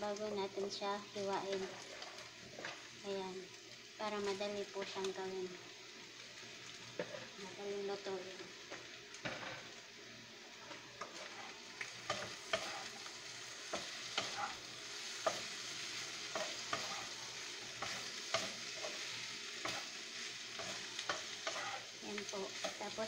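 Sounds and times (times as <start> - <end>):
vegetables sizzling in oil: 0.0 - 23.0
wooden spatula scraping a pan: 11.0 - 13.0, 13.7 - 14.6, 16.3 - 17.2, 20.6 - 21.9.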